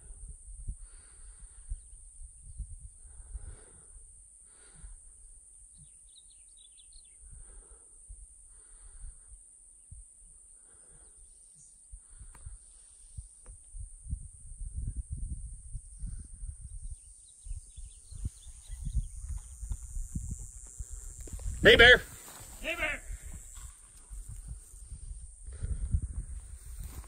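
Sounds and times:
wind rumble on microphone: 0:00.0 - 0:04.2, 0:12.0 - 0:27.0
faint bird chirps: 0:05.7 - 0:07.3, 0:16.6 - 0:19.5.

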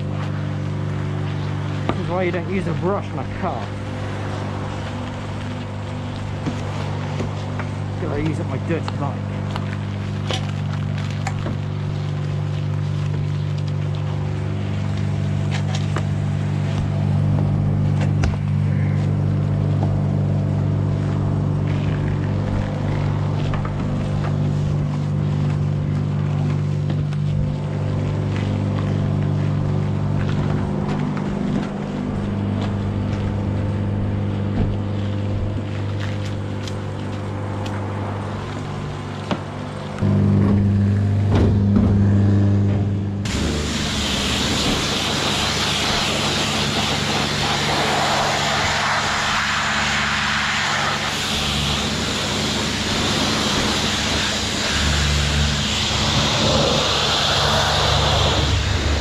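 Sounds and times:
pump motor humming: 0:00.0 - 0:59.0
brush scrubbing: 0:21.0 - 0:33.3, 0:43.3 - 0:59.0.

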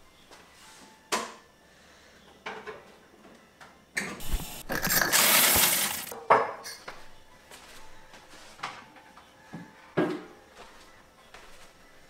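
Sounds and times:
coffee machine rushing noise: 0:04.2 - 0:06.1.

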